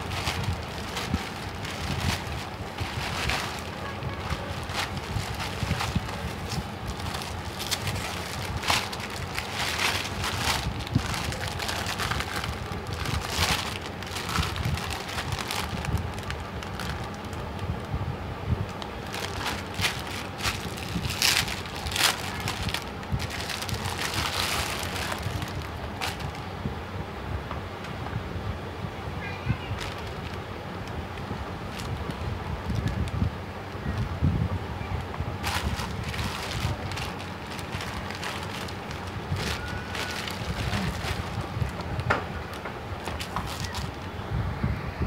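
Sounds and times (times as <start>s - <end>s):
plastic packaging crinkling: 0.0s - 17.7s, 18.6s - 26.5s, 29.8s - 31.0s, 31.6s - 33.0s, 35.4s - 44.1s.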